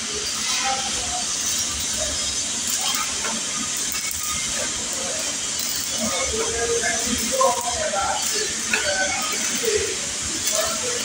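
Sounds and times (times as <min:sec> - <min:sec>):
welding arc hiss and crackle: 0:00.0 - 0:11.0.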